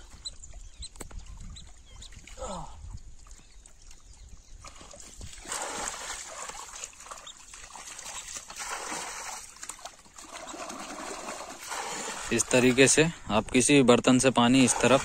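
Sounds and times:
water thrown and splashing: 4.6 - 13.1.

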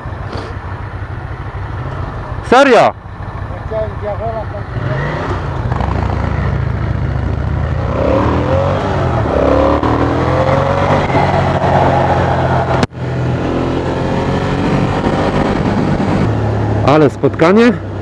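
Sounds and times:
motorcycle engine accelerating: 0.0 - 18.0
wind rush: 5.4 - 16.9.

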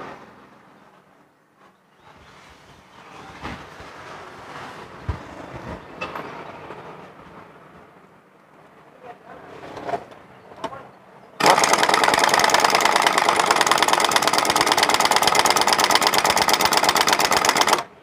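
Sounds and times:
impact wrench hammering: 11.4 - 17.9.

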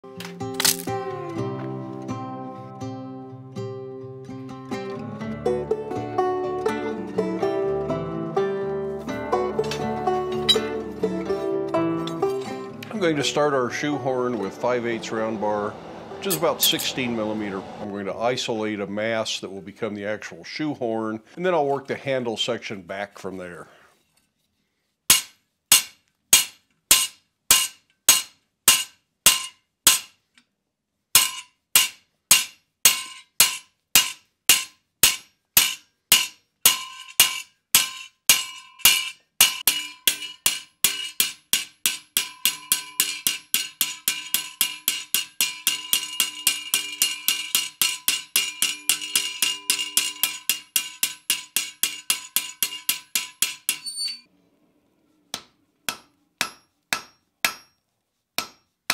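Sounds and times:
hammer striking steel on anvil: 9.6 - 10.9, 12.0 - 17.8, 25.1 - 30.2, 31.2 - 54.2, 55.3 - 57.8, 58.4 - 58.9.

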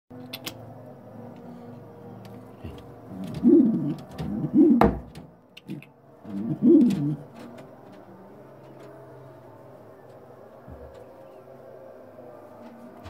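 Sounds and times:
pigeon cooing: 2.5 - 5.0, 5.6 - 7.5.

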